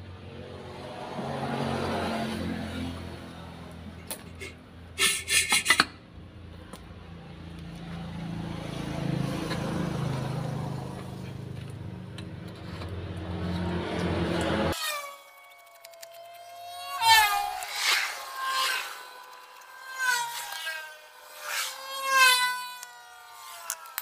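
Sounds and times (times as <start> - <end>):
engine humming: 0.0 - 14.8.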